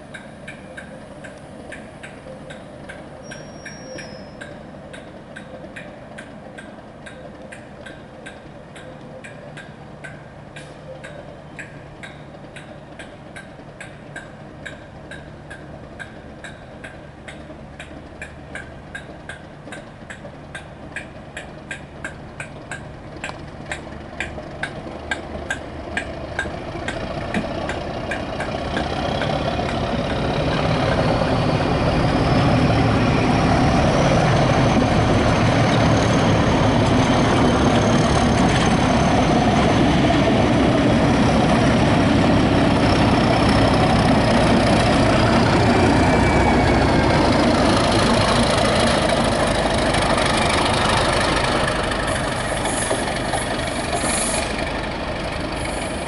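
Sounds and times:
diesel locomotive engine humming: 0.0 - 56.0
regular sharp ticking: 4.4 - 31.1.

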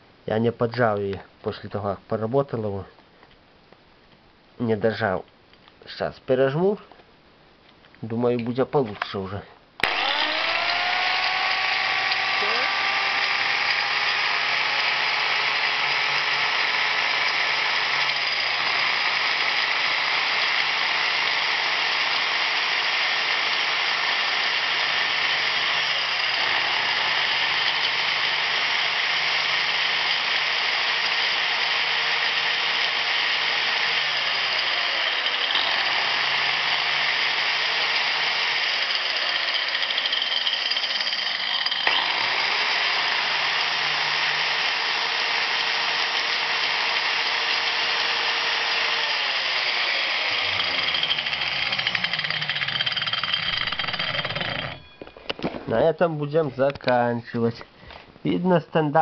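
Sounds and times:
angle grinder motor whirring: 9.8 - 55.6.

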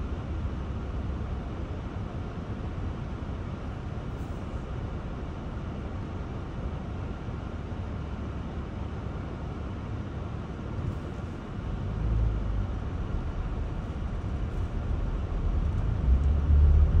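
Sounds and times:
road noise: 0.0 - 17.0
vehicle engines rumbling: 9.4 - 17.0.

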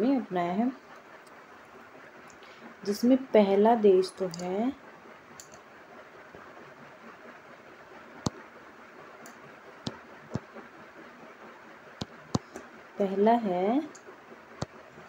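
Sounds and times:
faint hiss: 0.0 - 15.0
sharp clicks: 5.4 - 5.6.

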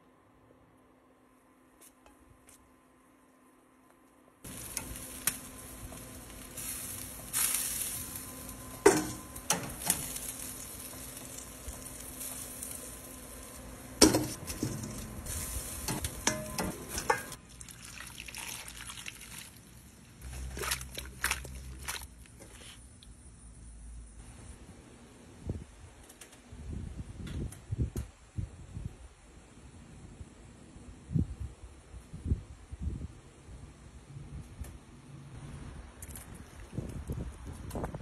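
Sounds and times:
chicken wings sizzling on grill: 4.4 - 23.2
metal tongs clicking on grate: 15.9 - 17.4.

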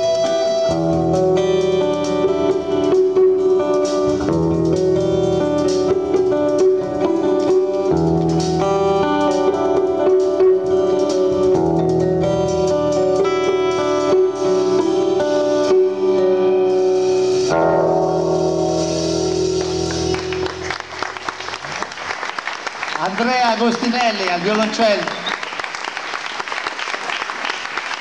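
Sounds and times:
light drums: 0.0 - 20.6
picked guitar notes: 0.0 - 22.2.

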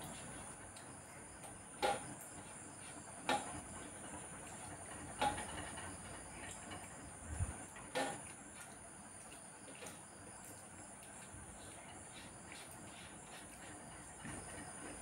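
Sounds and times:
faint steady hiss: 0.0 - 15.0.

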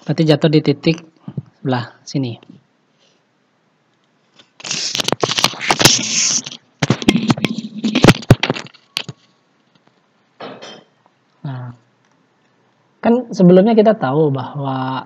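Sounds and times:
loud crackling rustling with clicks: 4.3 - 10.0.

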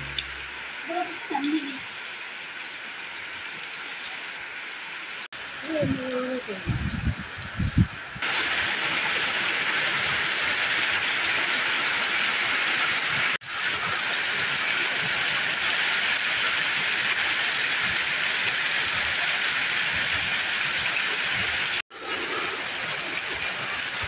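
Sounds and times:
heavy rain pouring: 0.0 - 24.0.

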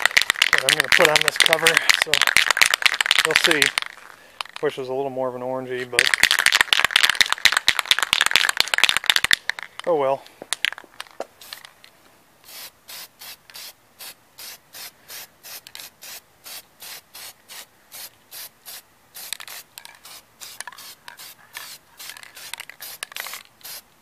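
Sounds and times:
spray paint can hissing: 0.0 - 4.6, 11.4 - 11.7, 12.4 - 23.9.

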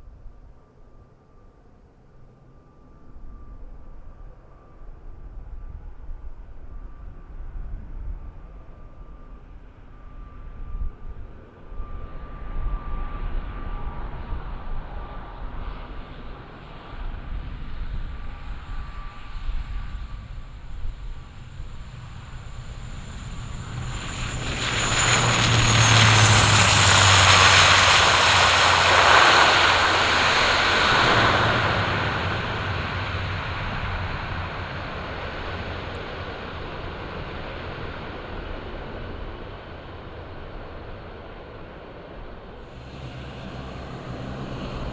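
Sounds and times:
turboprop plane rolling past: 2.1 - 44.9.

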